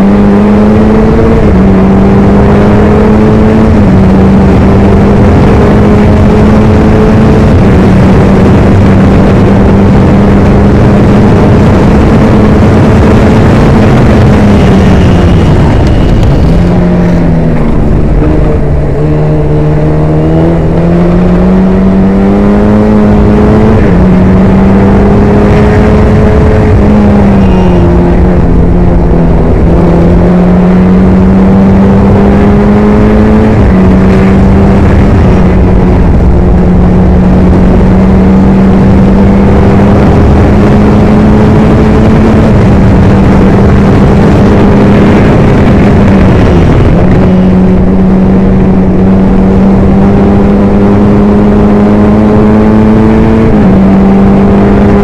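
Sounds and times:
gear changes: 0:00.0 - 0:55.0
race car engine: 0:00.0 - 0:55.0.

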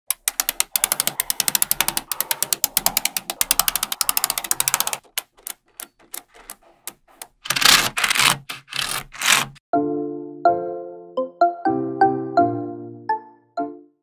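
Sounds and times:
magnetic balls clicking: 0:00.1 - 0:07.6
scraping rasp: 0:00.8 - 0:09.6.

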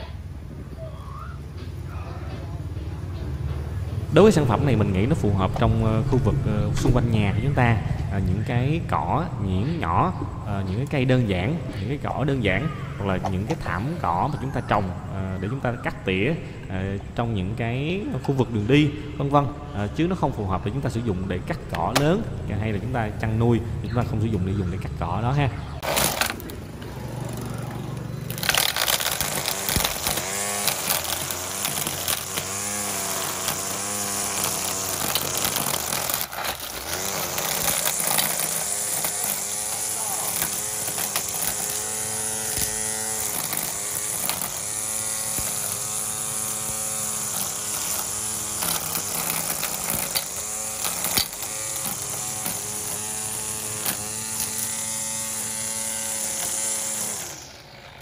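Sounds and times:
string trimmer cutting grass: 0:03.4 - 0:17.1, 0:25.8 - 0:58.0.

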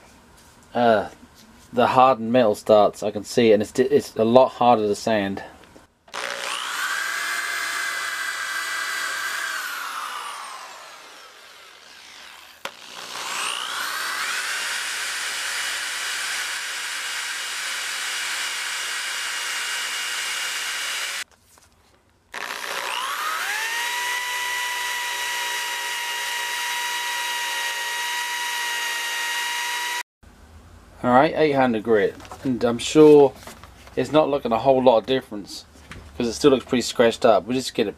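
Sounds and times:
orbital sander motor whine: 0:06.1 - 0:21.2, 0:22.4 - 0:30.0.

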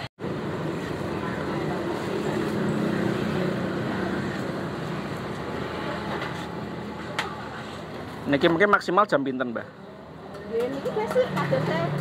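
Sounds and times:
vehicle passing: 0:00.5 - 0:08.4.

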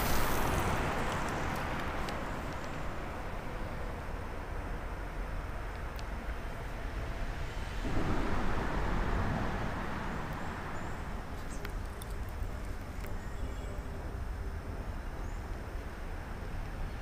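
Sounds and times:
traffic rumble overhead: 0:00.0 - 0:17.0
vehicle passing: 0:07.4 - 0:12.6.

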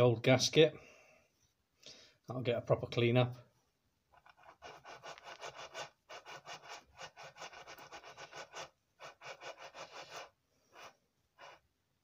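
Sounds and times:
brisk rubbing strokes: 0:04.1 - 0:11.8.

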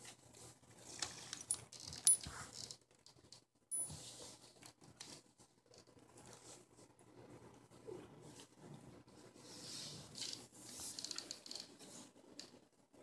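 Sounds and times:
rubbing against cat fur: 0:08.2 - 0:11.2.

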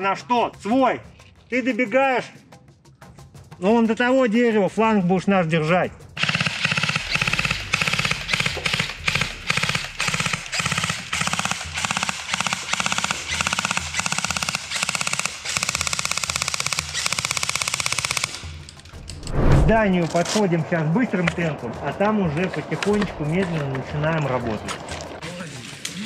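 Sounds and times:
automatic gunfire bursts: 0:06.2 - 0:18.6.

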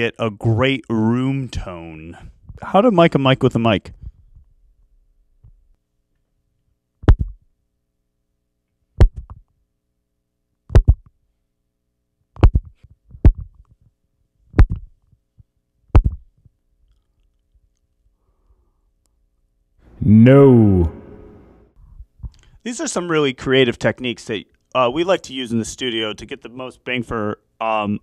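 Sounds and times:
thumps on a microphone: 0:07.0 - 0:07.4, 0:09.0 - 0:09.4, 0:10.7 - 0:11.1, 0:12.4 - 0:13.6, 0:14.5 - 0:15.0, 0:15.9 - 0:16.3.

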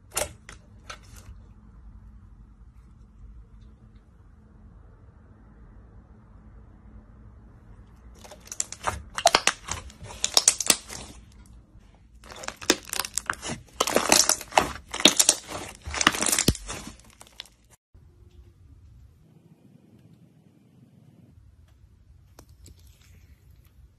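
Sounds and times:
slime crackling and popping: 0:08.2 - 0:11.3, 0:12.2 - 0:17.8.

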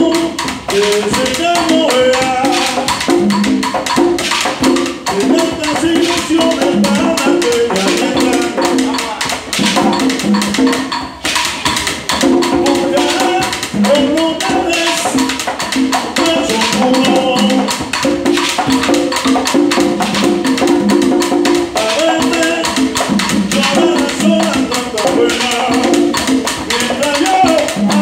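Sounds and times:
person singing: 0:00.0 - 0:03.1, 0:05.0 - 0:09.4, 0:12.4 - 0:15.4, 0:16.0 - 0:17.8, 0:21.7 - 0:28.0
conga drums: 0:00.0 - 0:28.0
wooden clicking percussion: 0:00.0 - 0:28.0.

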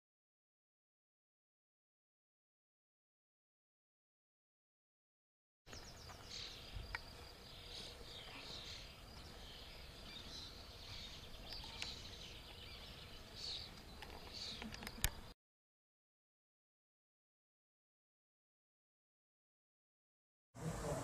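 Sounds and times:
faint insect-like buzz: 0:05.7 - 0:15.3.

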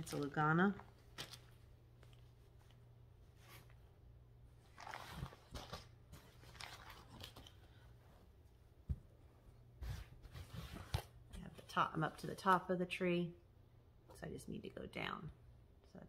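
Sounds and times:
faint rustling and crinkling: 0:00.0 - 0:12.6.

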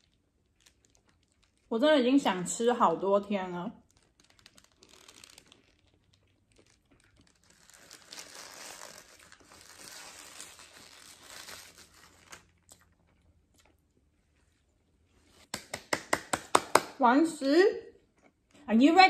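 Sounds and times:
paper wrapper crinkling: 0:00.0 - 0:01.7, 0:03.7 - 0:12.8.

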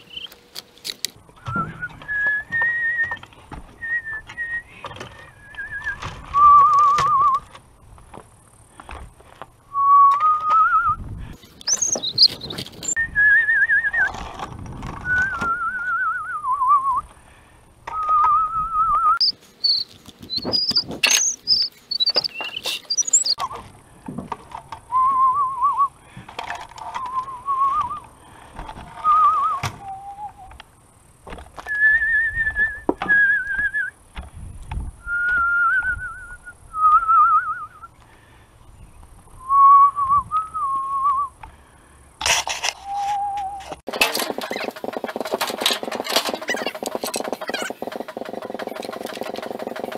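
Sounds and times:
person whistling: 0:01.4 - 0:03.2, 0:03.8 - 0:04.8, 0:05.4 - 0:07.4, 0:09.7 - 0:11.0, 0:11.7 - 0:14.2, 0:15.1 - 0:17.0, 0:24.9 - 0:25.9, 0:29.0 - 0:30.5, 0:31.7 - 0:33.9, 0:35.0 - 0:37.9, 0:39.4 - 0:41.4, 0:42.8 - 0:43.6
wooden knocks and clunks: 0:23.5 - 0:24.7.

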